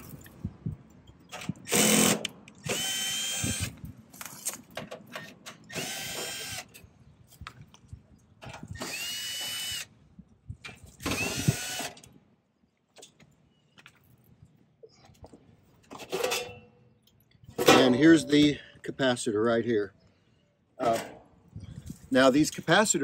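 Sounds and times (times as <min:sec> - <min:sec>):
cordless drill whining: 0:01.7 - 0:03.8, 0:05.7 - 0:06.7, 0:08.7 - 0:09.9, 0:11.0 - 0:12.0.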